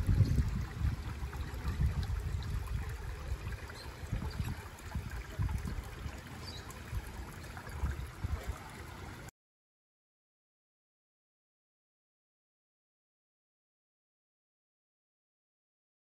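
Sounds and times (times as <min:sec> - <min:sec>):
water trickling over rocks: 0:00.0 - 0:09.3.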